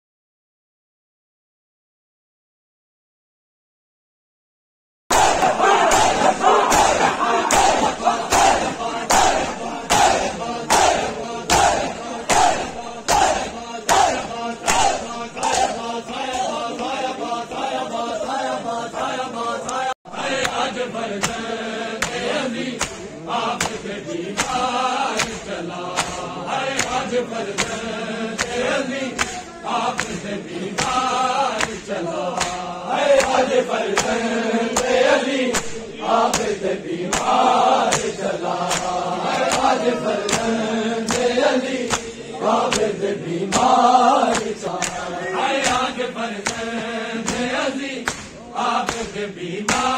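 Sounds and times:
chest-beating slaps: 5.1 - 17.0, 20.4 - 49.9
men chanting together: 5.1 - 49.9.

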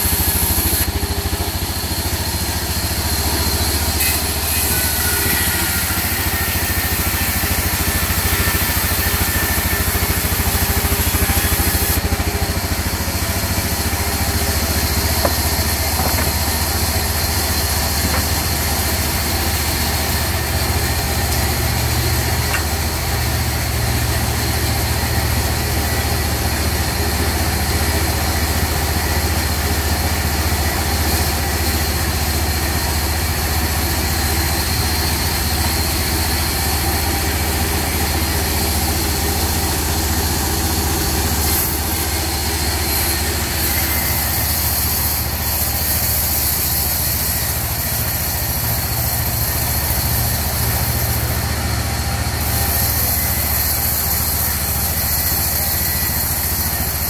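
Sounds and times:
diesel engine droning: 0.0 - 44.0.

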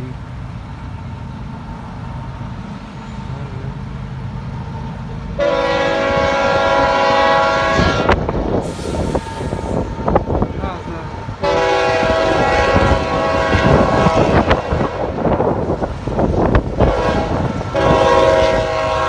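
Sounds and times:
locomotive air horn blast: 5.4 - 10.1, 11.4 - 15.2, 16.8 - 19.0.

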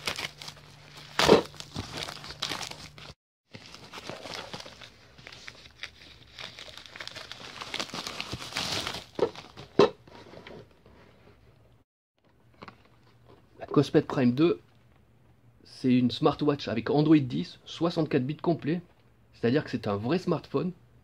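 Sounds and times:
plastic mailer crinkling: 0.0 - 9.8.

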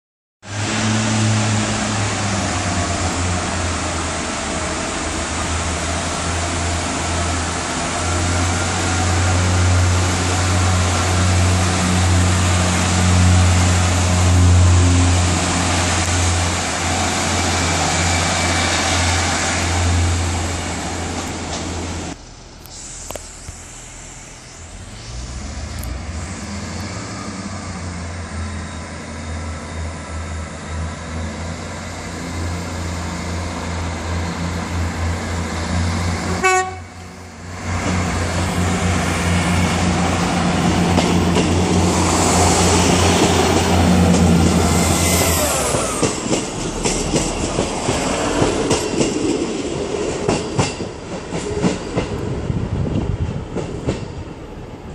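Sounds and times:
diesel train arriving: 0.4 - 54.9
diesel train engine idling: 22.0 - 27.7.

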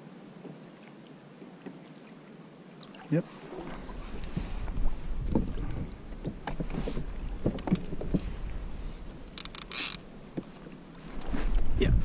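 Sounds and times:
knocks and taps of gear: 6.2 - 8.3.

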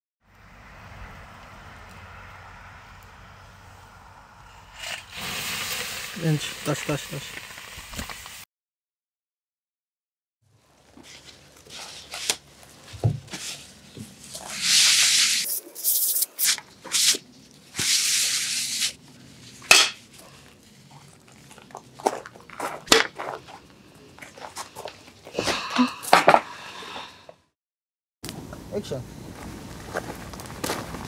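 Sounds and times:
hissing rushes: 14.4 - 19.0.

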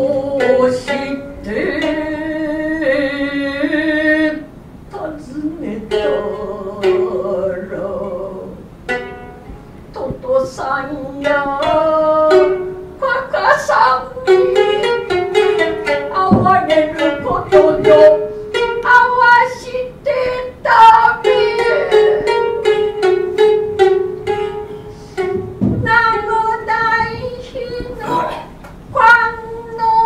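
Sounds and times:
shamisen plucked notes: 0.0 - 4.4, 5.5 - 30.0
person chanting long notes: 21.2 - 25.4, 27.0 - 28.6.

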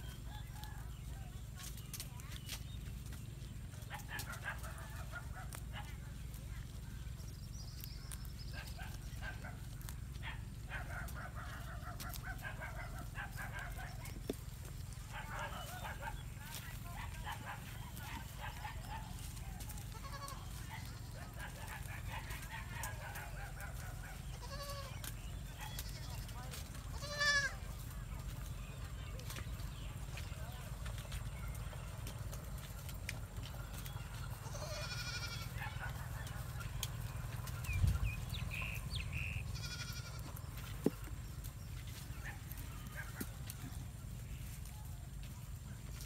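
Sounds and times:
steady low rumble: 0.1 - 46.0
goat bleating: 14.9 - 27.9, 34.2 - 37.6, 39.4 - 40.6.

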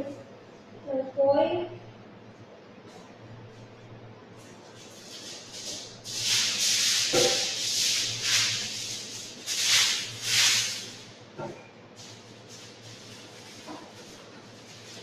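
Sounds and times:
aluminium foil crinkling: 12.0 - 15.0.

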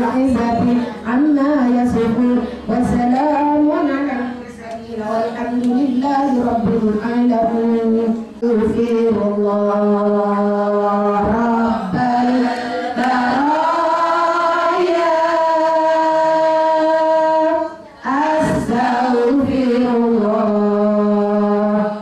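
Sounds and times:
woman chanting into a microphone: 0.0 - 22.0
women's voices singing along: 0.0 - 22.0.

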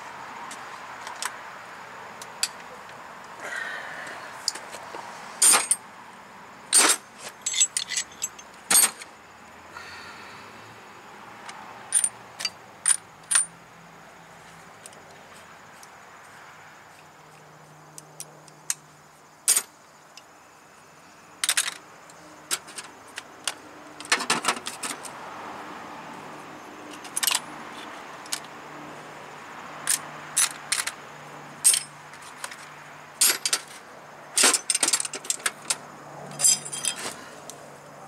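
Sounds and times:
metal tools clinking in toolbox: 5.4 - 5.8, 6.7 - 9.1, 26.9 - 27.5, 31.6 - 32.6, 33.2 - 37.2.

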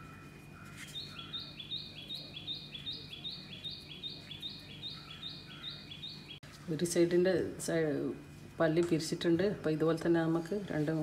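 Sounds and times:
small bird chirping: 0.8 - 6.4.

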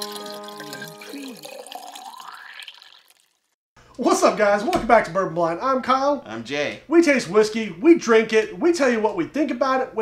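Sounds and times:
liquid pouring into a glass: 0.0 - 3.5.

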